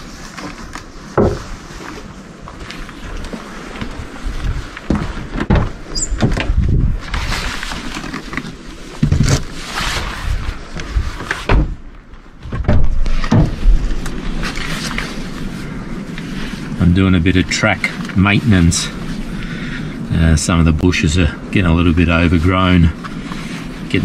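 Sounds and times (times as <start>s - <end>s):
rustling of gear: 0.0s - 19.8s, 22.1s - 24.0s
knocks and thumps: 1.1s - 1.6s, 4.9s - 6.6s, 11.5s - 11.8s, 12.4s - 13.8s.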